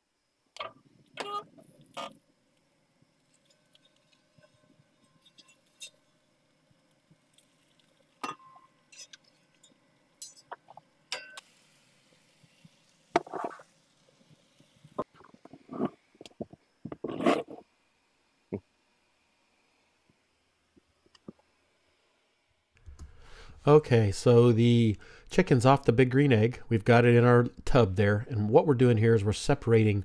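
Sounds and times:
metal spatula clinking on grill grate: 0:11.1 - 0:11.4.

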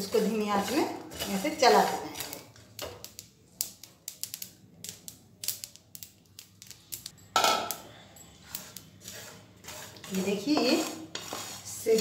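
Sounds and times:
sesame seeds popping in a pan: 0:01.5 - 0:07.8.

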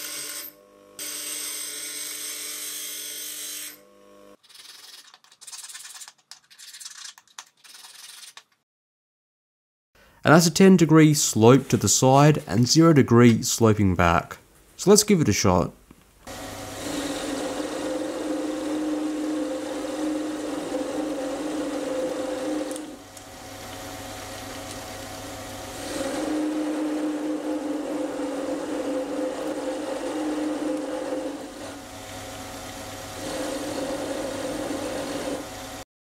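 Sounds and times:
lathe humming with a whine: 0:16.3 - 0:35.8.

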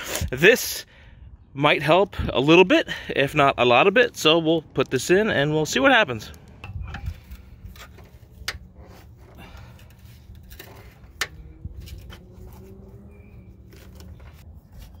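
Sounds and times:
screwdriver scraping: 0:06.6 - 0:15.0.

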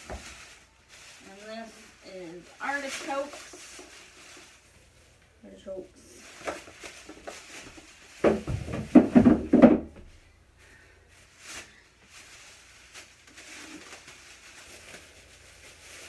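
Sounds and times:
rustling: 0:00.0 - 0:16.0
groceries knocking and clattering: 0:06.3 - 0:10.1.

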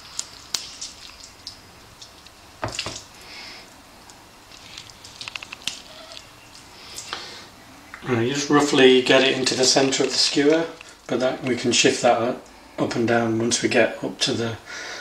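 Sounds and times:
wet squelches of raw meat: 0:00.0 - 0:08.0.

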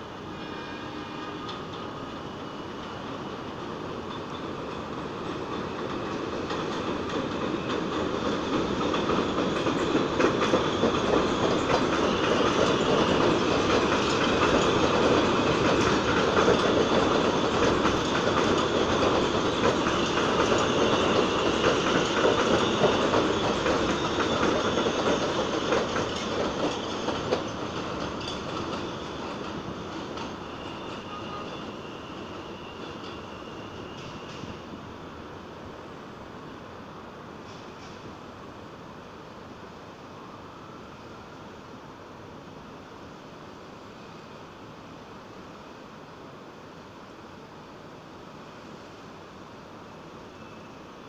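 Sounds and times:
subway train wheels clattering on rails: 0:00.0 - 0:35.5, 0:36.5 - 0:38.7.

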